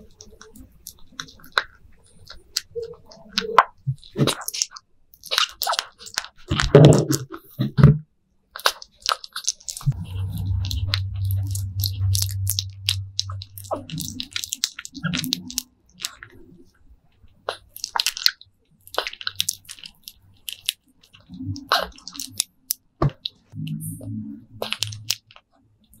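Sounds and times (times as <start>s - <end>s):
animal chewing and smacking: 8.6s - 16.6s
low rumbles: 9.8s - 16.9s, 23.5s - 25.8s
low steady hum: 9.8s - 26.0s.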